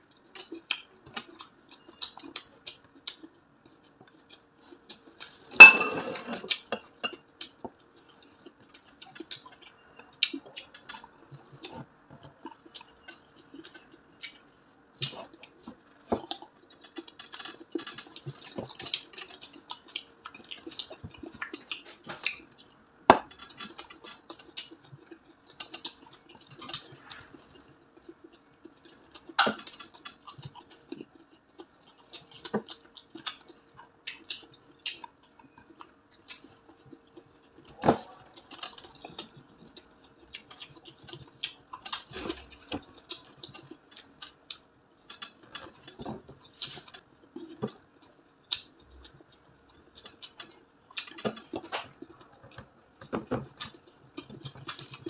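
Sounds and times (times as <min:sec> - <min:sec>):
crunching crispy fried pork: 0:15.0 - 0:55.0.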